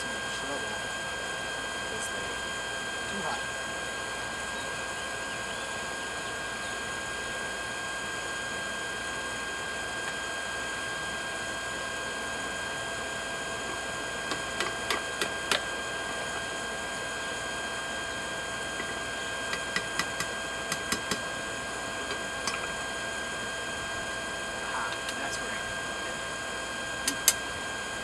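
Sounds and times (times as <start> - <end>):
electric blower humming: 7.1 - 28.0.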